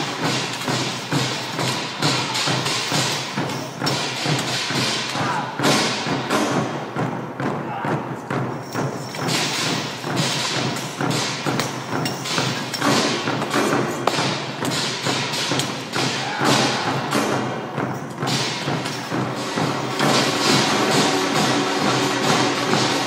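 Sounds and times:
drums in driving rhythm: 0.0 - 23.0.

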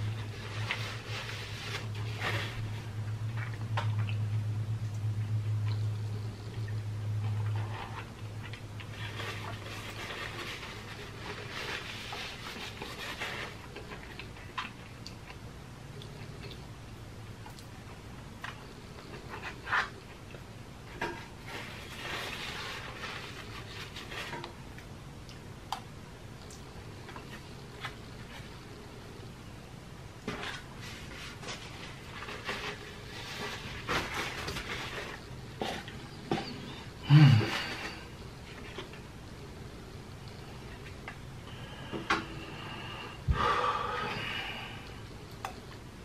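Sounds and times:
low hum: 0.0 - 25.0.

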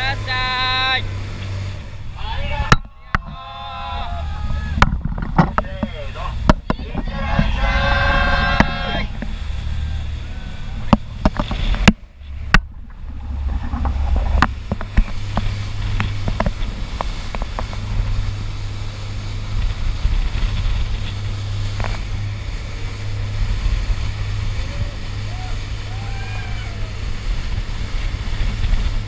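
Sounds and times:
boat engine rumble: 0.0 - 29.0
water rushing past hull: 0.0 - 29.0
wind on microphone: 1.1 - 29.0
splash-like clicks: 10.8 - 18.7.

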